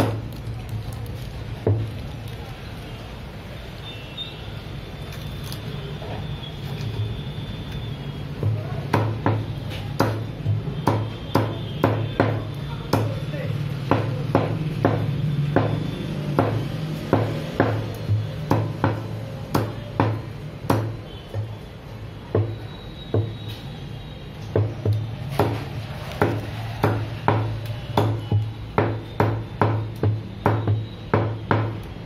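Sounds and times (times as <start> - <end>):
cleaver chopping on wooden block: 8.4 - 13.2, 13.8 - 21.6, 24.6 - 31.8.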